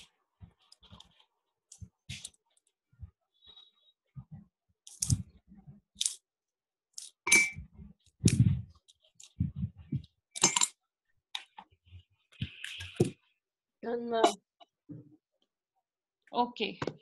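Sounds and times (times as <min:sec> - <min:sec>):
dull low thumps: 0:09.4 - 0:10.1.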